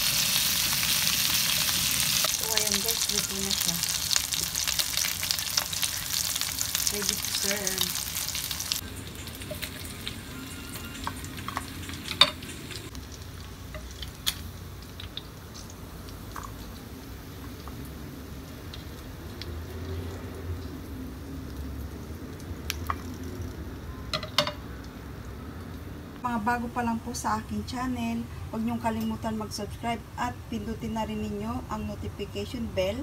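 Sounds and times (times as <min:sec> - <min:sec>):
lamb chops sizzling: 0:00.0 - 0:19.6.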